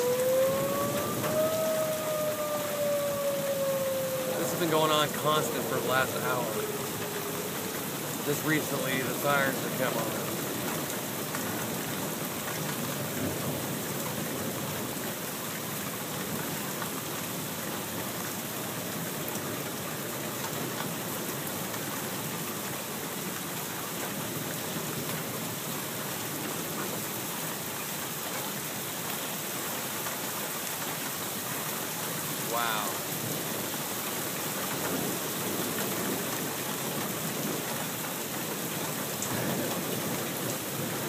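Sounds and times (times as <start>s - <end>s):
thunder rumbling: 0.0s - 10.9s
heavy rain falling: 0.0s - 41.0s.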